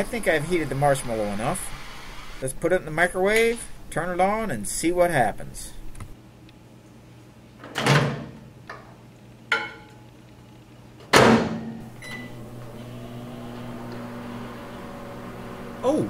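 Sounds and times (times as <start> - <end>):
microwave door banging shut: 11.1 - 12.2
microwave oven humming: 11.8 - 16.0.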